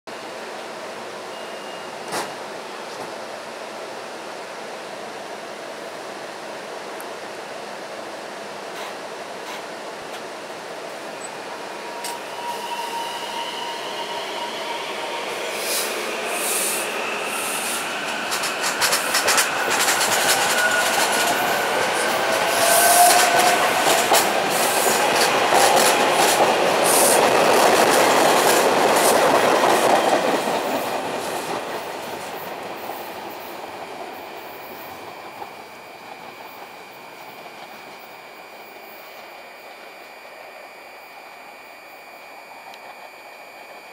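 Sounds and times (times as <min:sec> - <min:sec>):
train wheels clattering on rails: 0:02.0 - 0:03.2, 0:13.9 - 0:38.2
electric train whining: 0:10.4 - 0:43.9.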